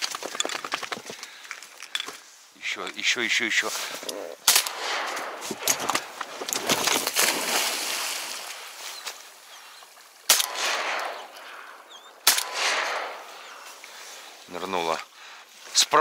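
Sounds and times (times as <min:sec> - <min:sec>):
shotgun shots echoing: 0:04.4 - 0:06.3, 0:10.3 - 0:13.7
distant gunfire cracks: 0:04.4 - 0:07.4, 0:10.3 - 0:13.6.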